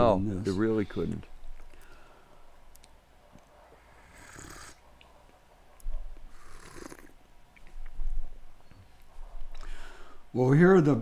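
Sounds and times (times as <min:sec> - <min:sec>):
loud coffee slurps: 0:06.4 - 0:07.1.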